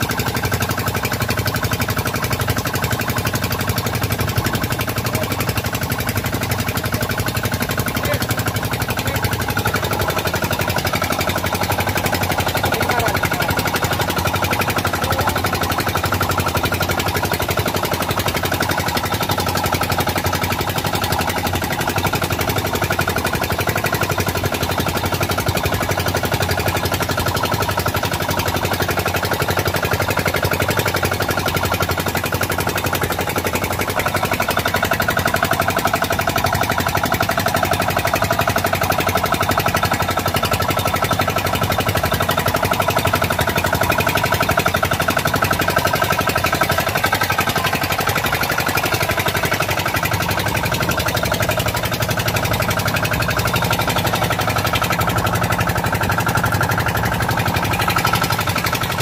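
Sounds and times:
air compressor engine running: 0.0s - 59.0s.

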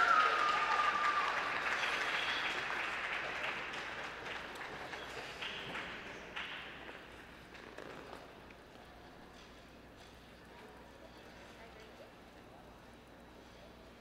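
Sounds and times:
audience applause: 0.0s - 6.9s.

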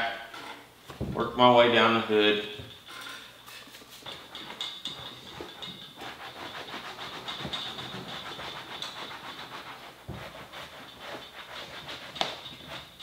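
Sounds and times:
cloth scrubbing leather: 5.0s - 13.0s.

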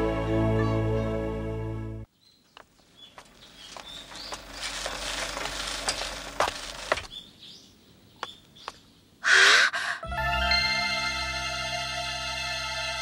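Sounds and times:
wooden handcart rattling: 3.0s - 7.2s.

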